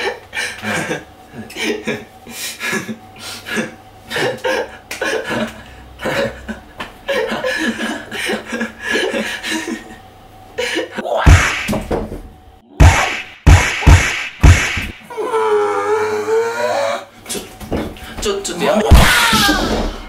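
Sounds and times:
loud thump: 12.8s - 15.0s.

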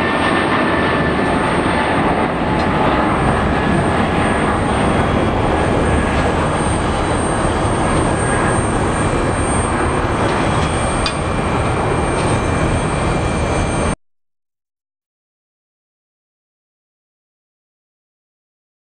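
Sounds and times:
jet engine deep rumble: 0.0s - 14.0s.

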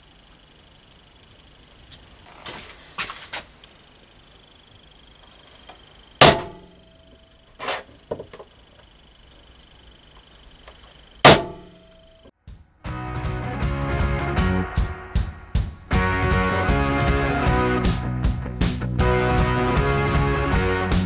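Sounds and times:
hammer striking metal punch: 6.2s - 7.0s, 11.2s - 12.1s.

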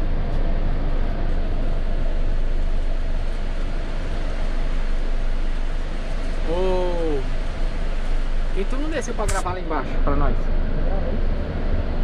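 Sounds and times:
coach engine and cabin noise: 0.0s - 12.0s.

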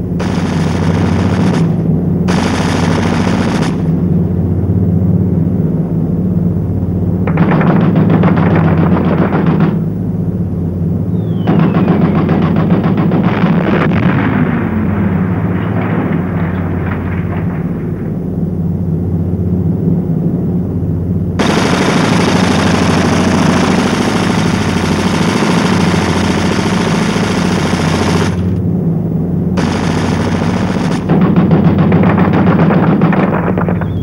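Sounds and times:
low engine drone: 0.0s - 34.0s
machine-gun fire: 0.2s - 4.0s, 7.3s - 9.9s, 11.4s - 18.0s, 21.4s - 28.6s, 29.6s - 34.0s.

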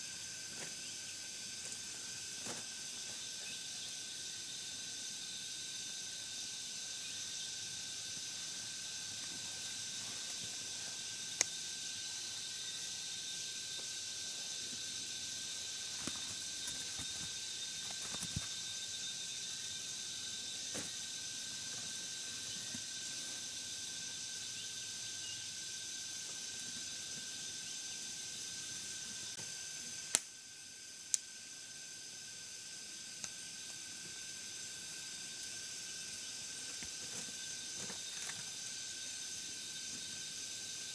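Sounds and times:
insect chorus buzzing: 0.0s - 40.9s.

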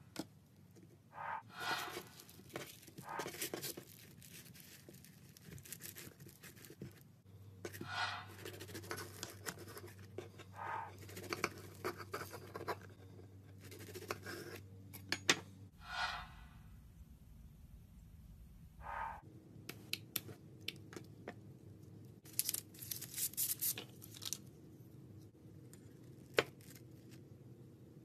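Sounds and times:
foam slime crackling and squishing: 2.1s - 6.9s.

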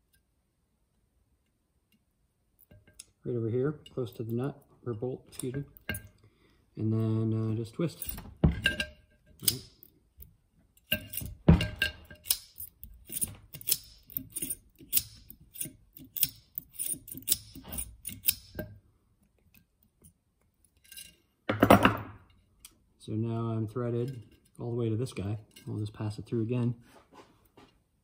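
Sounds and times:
pliers twisting wire clicks: 9.4s - 9.9s, 10.8s - 18.6s.

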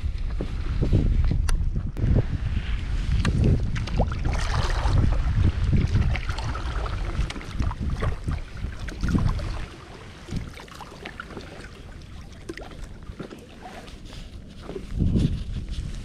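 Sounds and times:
paddle pulling through water: 2.2s - 16.0s
water splashes and drips: 3.2s - 13.9s.

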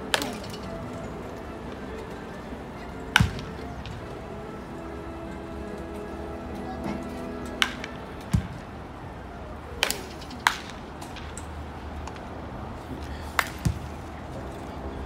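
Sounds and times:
baseball bat cracking ball: 3.1s - 4.0s, 7.6s - 8.6s, 9.8s - 11.4s, 13.4s - 13.9s.

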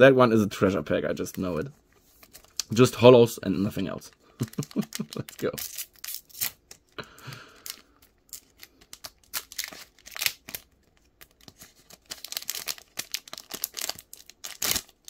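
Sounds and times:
wrapper tearing and crinkling: 4.4s - 7.0s, 7.6s - 15.0s.

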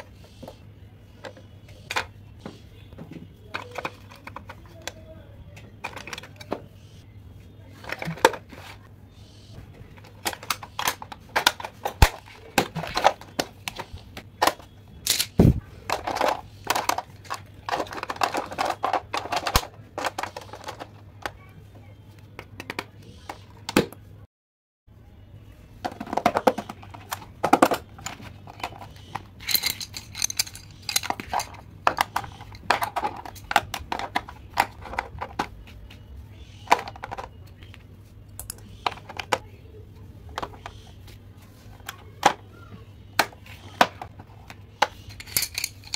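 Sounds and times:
clicks of plastic compartments: 3.0s - 6.7s, 9.9s - 21.5s, 25.9s - 36.0s, 36.6s - 37.8s, 38.4s - 39.5s.

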